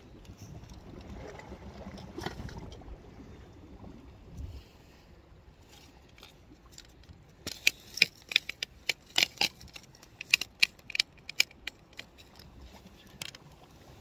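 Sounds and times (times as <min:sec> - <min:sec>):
fishing reel clicking: 0:07.5 - 0:12.5.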